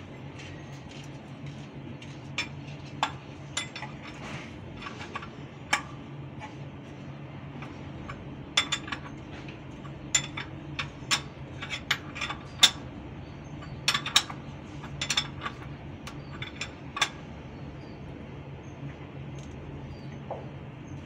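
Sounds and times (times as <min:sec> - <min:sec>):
steady low hum: 0:00.0 - 0:21.0
wrench clicking on metal bolts: 0:07.6 - 0:12.9, 0:13.6 - 0:17.2.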